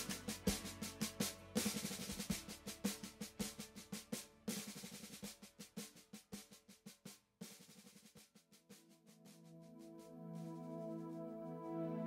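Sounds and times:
snare drum rolls: 0.0s - 8.8s.

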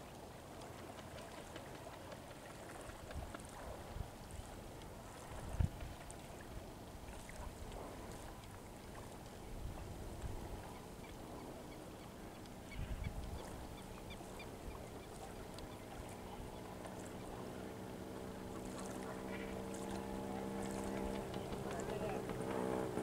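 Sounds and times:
low wind rumble: 3.1s - 16.6s
motor hum: 7.4s - 23.0s.

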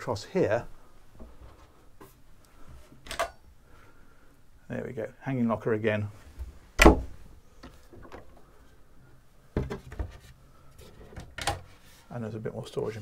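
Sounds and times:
locker door thump: 6.8s - 7.2s.

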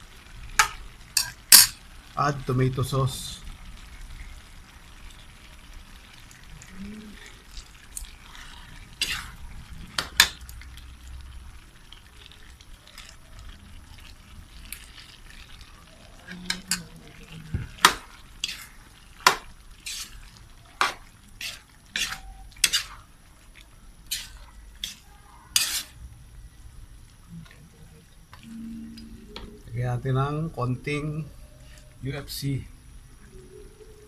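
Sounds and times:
metal spoon scraping a wok: 0.6s - 1.8s, 8.0s - 9.4s, 17.8s - 23.1s, 24.0s - 26.0s.

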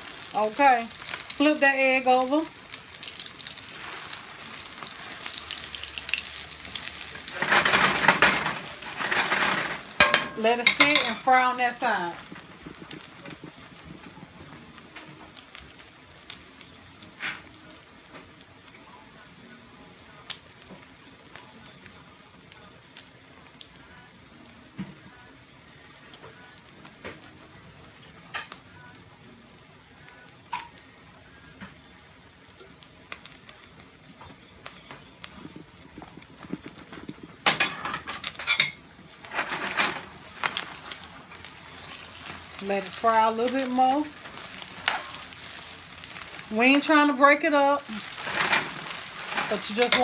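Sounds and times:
hot oil popping: 0.0s - 18.3s, 32.4s - 50.0s
egg frying in oil: 0.0s - 18.5s, 29.6s - 50.0s
spatula scraping a pan: 7.3s - 11.4s, 44.2s - 45.6s, 47.9s - 50.0s.

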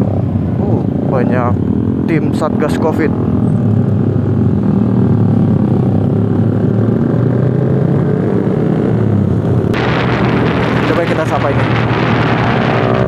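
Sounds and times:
motorcycle engine accelerating: 1.6s - 13.0s
wind noise on microphone: 8.9s - 13.0s.

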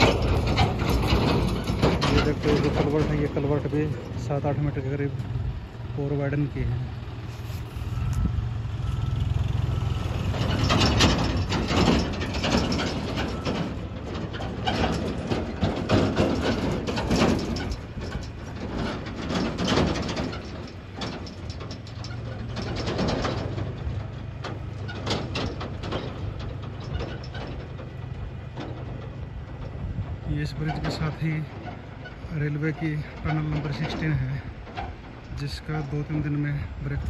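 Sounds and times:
heavy diesel engine running: 0.0s - 37.0s.

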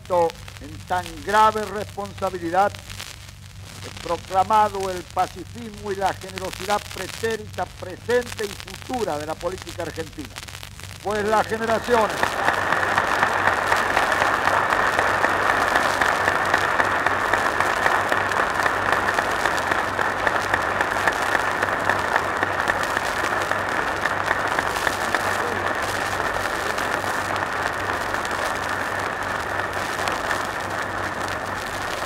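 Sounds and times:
audience applauding: 11.1s - 32.0s.

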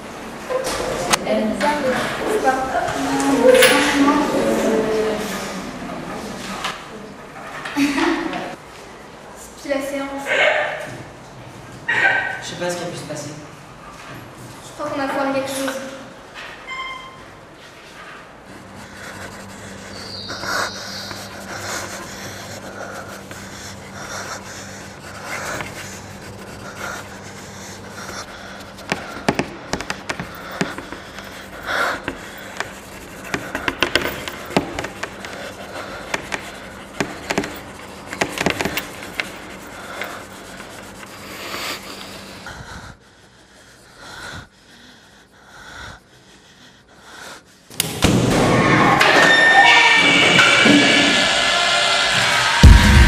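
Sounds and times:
person panting heavily: 17.6s - 47.8s
loud music: 50.0s - 53.0s.

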